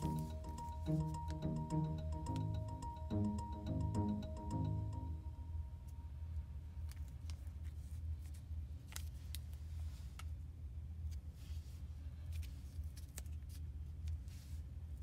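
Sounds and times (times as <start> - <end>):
low steady hum: 0.0 - 6.9.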